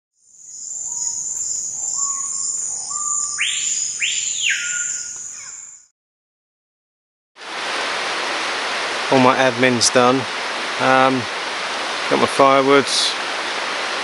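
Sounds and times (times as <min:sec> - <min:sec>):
high insect drone: 0:00.2 - 0:05.8
bird whistles: 0:00.7 - 0:05.9
steady rushing hiss: 0:07.4 - 0:14.0.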